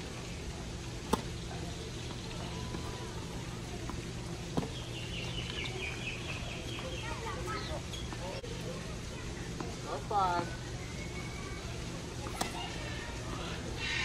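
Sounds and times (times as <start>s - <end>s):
steady low hum: 0.0s - 14.0s
tennis ball racket hits: 1.0s - 1.4s, 3.8s - 4.8s, 12.3s - 12.7s.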